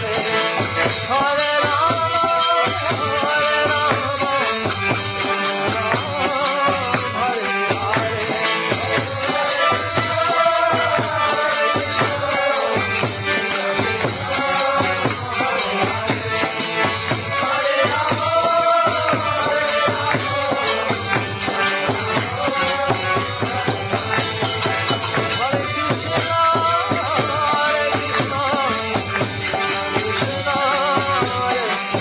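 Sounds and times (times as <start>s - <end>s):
jingling hand percussion: 0.0s - 32.0s
voices singing: 0.0s - 32.0s.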